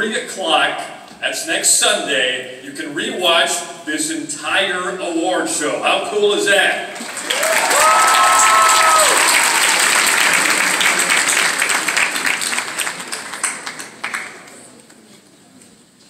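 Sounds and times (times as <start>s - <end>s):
audience applauding: 6.9s - 15.0s.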